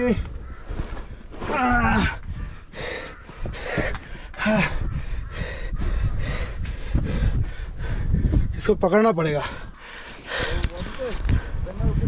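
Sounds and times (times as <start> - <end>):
person breathing hard: 2.1 - 8.5, 9.5 - 11.7.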